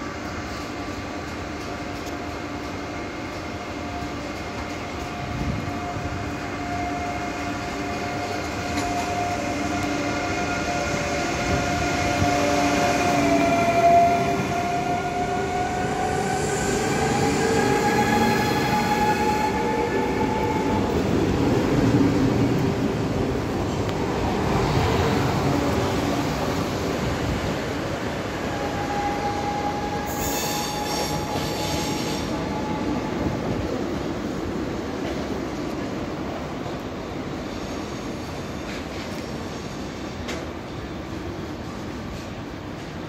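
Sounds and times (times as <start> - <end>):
train whining tones rising: 0.0 - 40.4
electric train arriving: 0.0 - 43.0.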